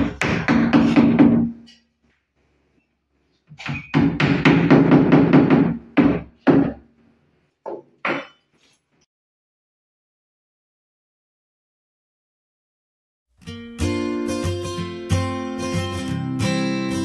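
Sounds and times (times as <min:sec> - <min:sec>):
hammer striking plywood panel: 0:00.0 - 0:01.6, 0:03.6 - 0:06.8.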